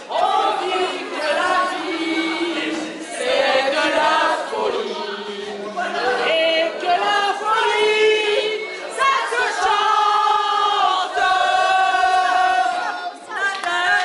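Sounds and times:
group of people singing: 0:00.0 - 0:14.0.

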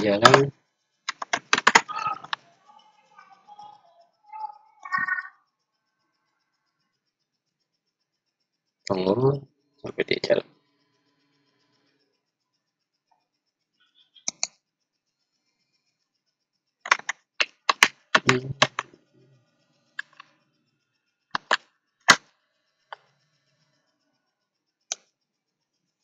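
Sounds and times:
computer keyboard keystrokes: 0:01.1 - 0:02.4, 0:14.3 - 0:14.6, 0:16.9 - 0:18.8, 0:21.4 - 0:22.2.

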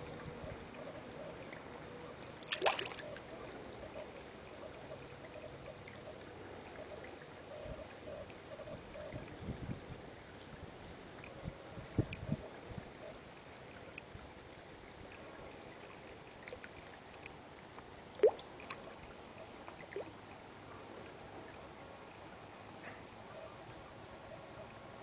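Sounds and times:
water drips and plops: 0:02.4 - 0:03.3, 0:16.4 - 0:18.9
water trickling: 0:02.4 - 0:04.3, 0:13.4 - 0:22.3.

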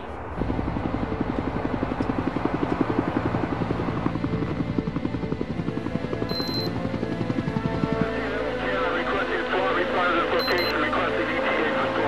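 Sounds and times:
helicopter rotor beating: 0:00.2 - 0:12.0
short high beep: 0:10.4 - 0:10.8.

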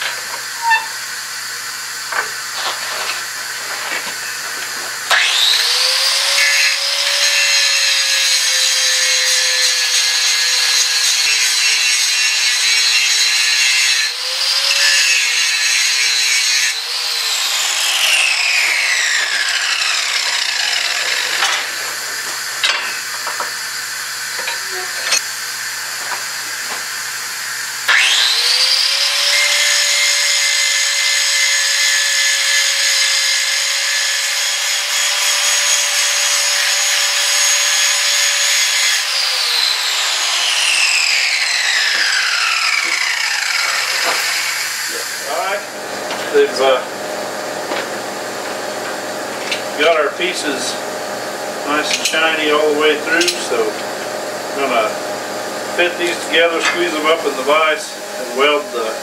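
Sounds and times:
angle grinder whining: 0:00.0 - 0:59.0.

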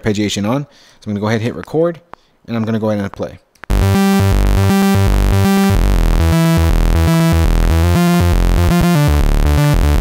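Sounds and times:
arpeggiated synth lead: 0:03.7 - 0:10.0.

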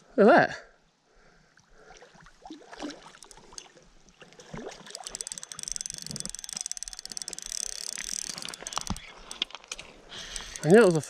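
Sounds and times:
fish splashing at surface: 0:01.9 - 0:05.8
spinning reel clicking: 0:03.1 - 0:03.7, 0:04.8 - 0:09.4, 0:10.3 - 0:11.0.

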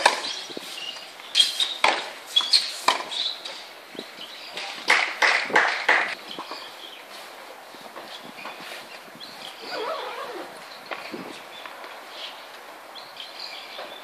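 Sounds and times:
shoe squeaks: 0:00.2 - 0:03.4, 0:09.5 - 0:11.1
racket hitting tennis ball: 0:01.8 - 0:03.2.

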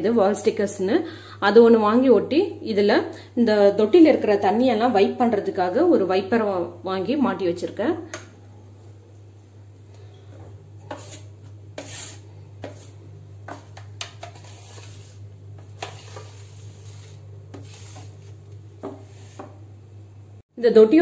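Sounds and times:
squeegee scraping wet sink: 0:10.8 - 0:19.6.

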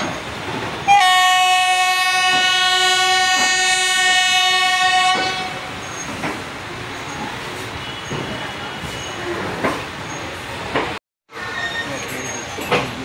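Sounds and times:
train horn long blast: 0:00.9 - 0:05.8.

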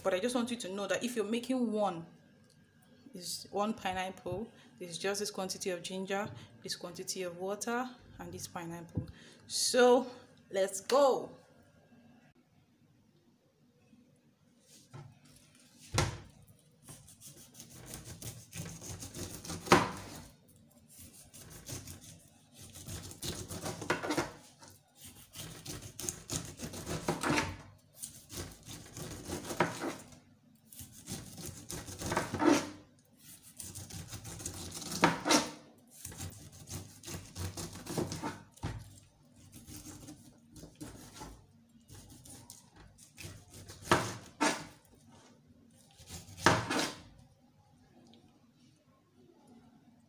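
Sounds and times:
knife rasping through pineapple skin: 0:16.8 - 0:38.6, 0:39.4 - 0:44.8, 0:45.9 - 0:47.0.

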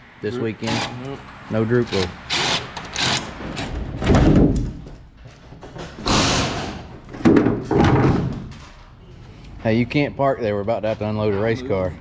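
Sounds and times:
dull thumps and knocks: 0:06.8 - 0:08.5.

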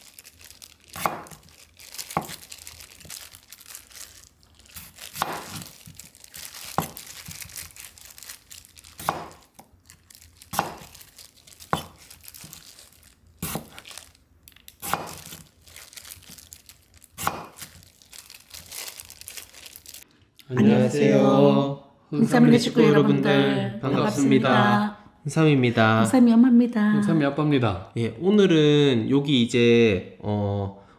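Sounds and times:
plastic glove rustling: 0:00.0 - 0:20.0
knife chopping on cutting board: 0:01.0 - 0:01.4, 0:04.8 - 0:05.6, 0:09.0 - 0:09.4, 0:10.5 - 0:10.9, 0:11.7 - 0:12.0, 0:13.4 - 0:13.8, 0:14.8 - 0:15.4, 0:17.2 - 0:17.7.

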